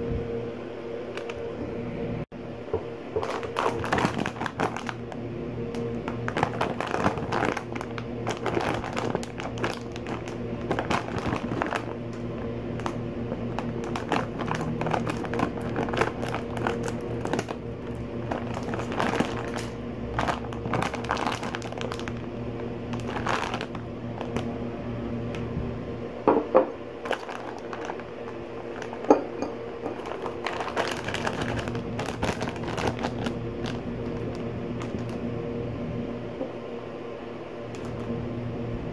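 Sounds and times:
plastic snack bag crinkling: 3.2s - 24.5s, 27.0s - 29.2s, 29.8s - 35.3s, 37.7s - 38.1s.

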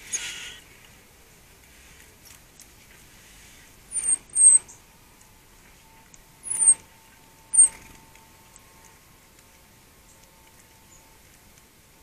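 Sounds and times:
small birds calling: 0.0s - 0.7s, 3.9s - 5.0s, 5.6s - 8.6s.

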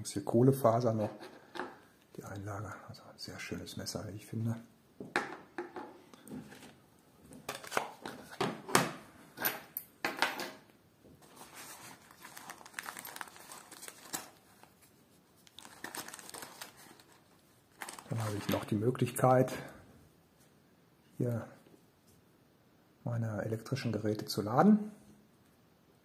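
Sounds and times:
crinkling and rustling of kit: 6.2s - 8.8s, 11.2s - 19.2s.

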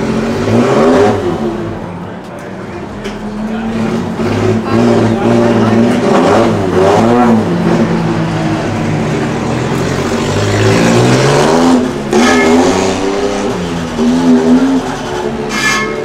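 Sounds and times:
truck engine revving: 0.0s - 2.0s, 2.6s - 16.0s.

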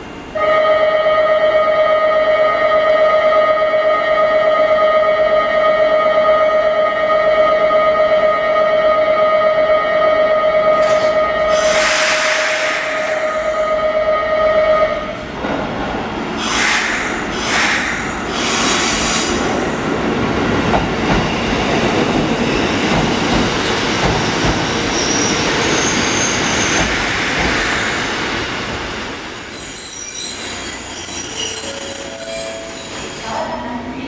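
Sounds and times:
train wheels rumbling: 15.0s - 34.0s
wheel and brake squeal: 24.9s - 26.9s, 27.5s - 33.4s.

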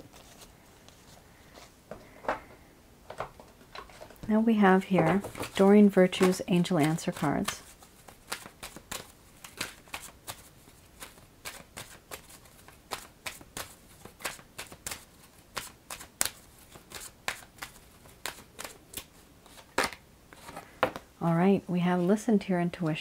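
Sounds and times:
cards being shuffled: 0.0s - 1.7s, 4.9s - 21.0s.

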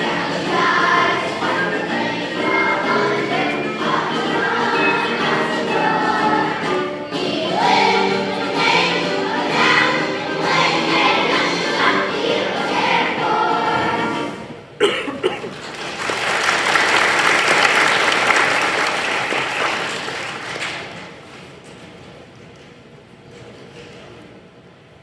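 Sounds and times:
children's choir singing: 0.0s - 14.6s
applause: 15.4s - 21.2s.

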